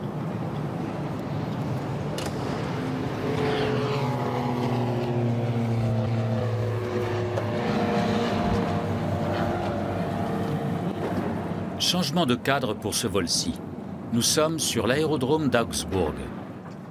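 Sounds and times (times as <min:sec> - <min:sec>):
propeller airplane engine droning: 0:00.0 - 0:16.9.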